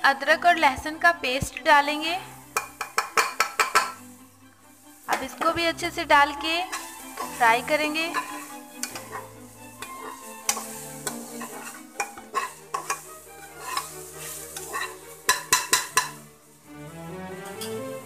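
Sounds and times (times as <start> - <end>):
soft background music: 0.0 - 18.0
food sizzling in oil: 1.7 - 18.0
metal spatula scraping a pot: 2.3 - 16.7.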